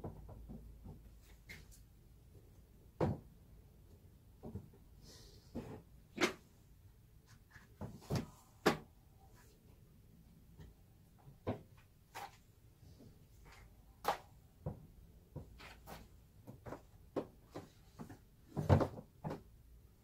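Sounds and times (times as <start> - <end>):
books knocking and rustling: 3.0 - 3.4, 7.6 - 8.9, 13.4 - 19.6.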